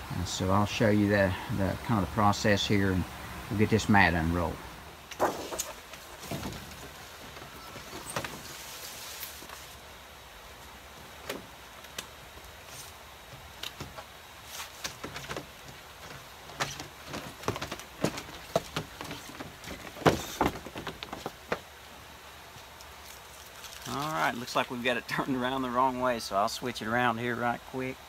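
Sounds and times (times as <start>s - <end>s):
mat rustling and sliding on foam: 5.2s - 9.8s, 14.4s - 15.1s.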